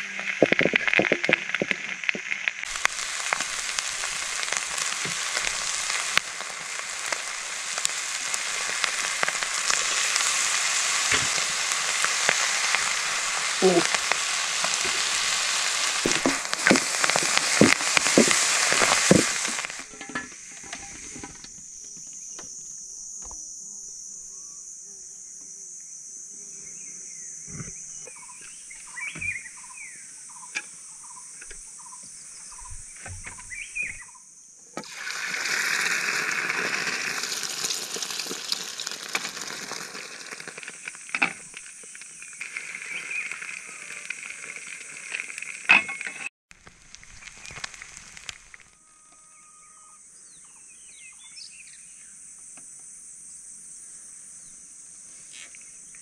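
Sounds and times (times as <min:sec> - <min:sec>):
food sizzling in a pan: 0:00.0 - 0:21.4, 0:34.8 - 0:46.3
insects chorus: 0:00.0 - 0:56.0
bird chirps: 0:27.8 - 0:34.2.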